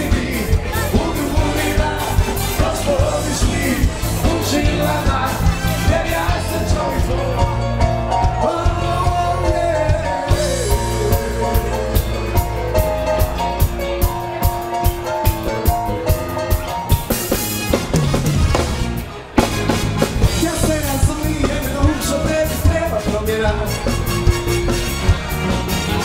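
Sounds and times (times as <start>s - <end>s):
person singing: 0.0s - 12.9s, 20.2s - 23.9s
drum kit beat: 0.0s - 26.0s
keyboard melody: 0.0s - 26.0s.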